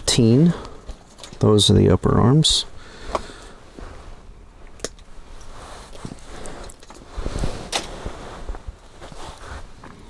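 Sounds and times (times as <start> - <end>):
handling rustle: 5.0 - 10.0.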